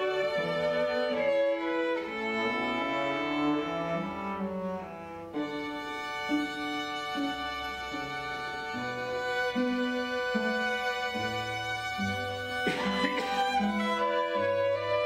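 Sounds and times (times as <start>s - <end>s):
string quartet playing: 0.0s - 15.0s.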